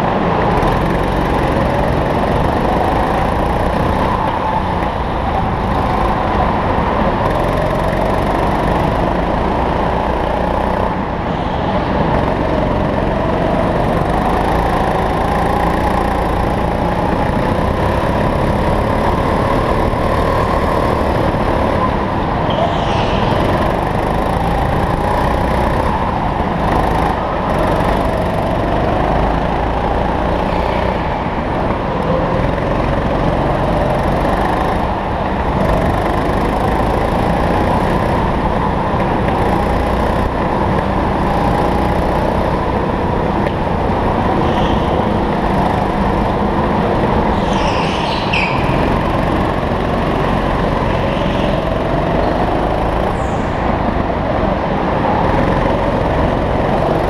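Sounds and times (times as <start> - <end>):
go-kart engine running hard: 0.0 - 57.0
brief high squeal: 22.5 - 23.3.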